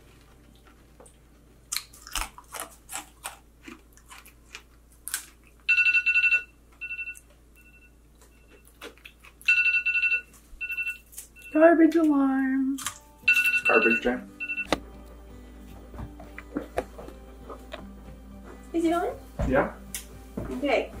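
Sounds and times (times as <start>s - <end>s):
crunchy biting and chewing: 1.7s - 5.7s, 8.5s - 9.5s
electronic alarm beeping: 5.7s - 8.7s, 9.5s - 11.7s, 13.3s - 14.7s.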